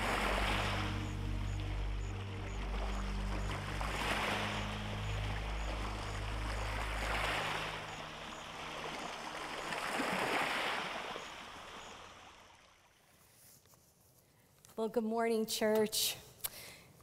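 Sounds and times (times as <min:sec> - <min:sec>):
low held music chord: 0:00.0 - 0:11.4
rushing water: 0:00.0 - 0:13.0.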